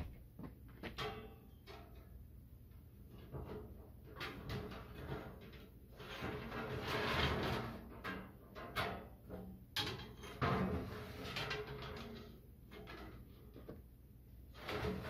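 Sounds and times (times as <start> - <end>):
thin metal scraping and rattling: 3.1 - 9.2.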